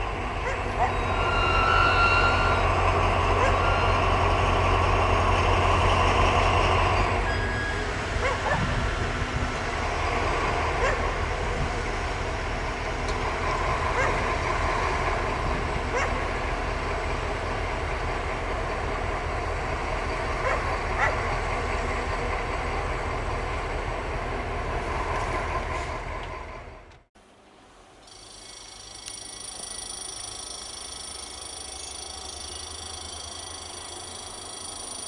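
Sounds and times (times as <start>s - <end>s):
diesel locomotives idling: 0.0s - 27.1s, 27.8s - 35.0s.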